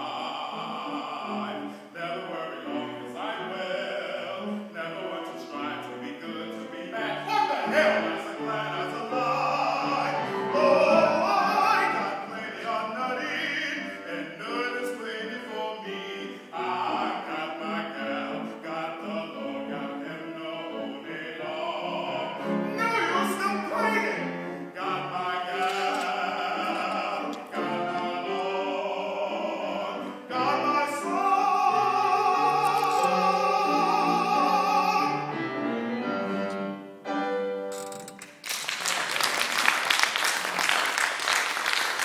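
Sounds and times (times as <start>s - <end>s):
man singing operatically: 0.0s - 35.6s
grand piano: 0.0s - 42.0s
audience applauding: 38.2s - 42.0s.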